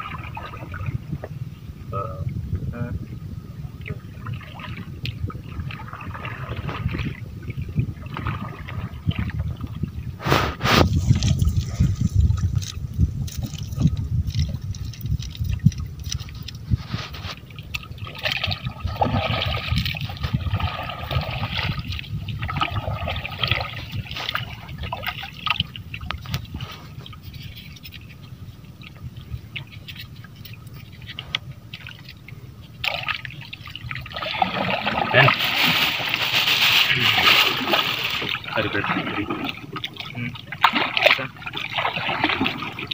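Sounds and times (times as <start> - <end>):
steady low rumble: 0.0 - 27.5
water splashing around boat: 0.0 - 42.9.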